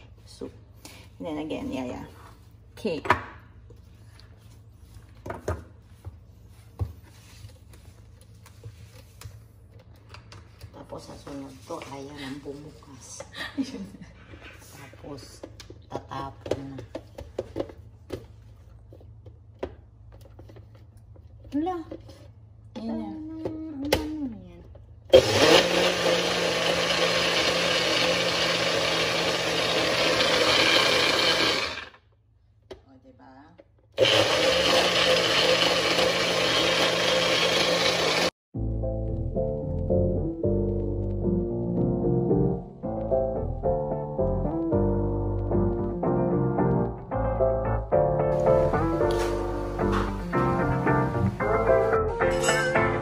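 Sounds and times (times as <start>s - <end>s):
blender motor running: 25.1s - 32.0s, 34.0s - 38.3s.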